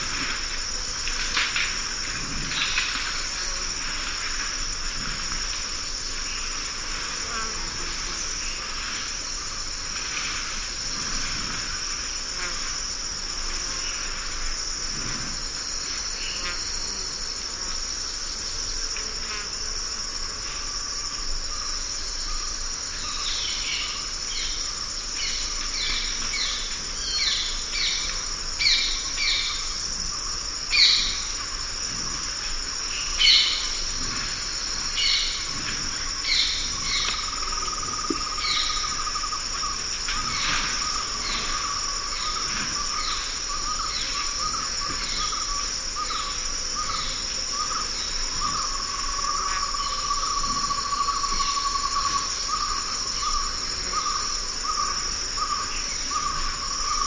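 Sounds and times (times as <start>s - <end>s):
insects droning: 0.0s - 57.0s.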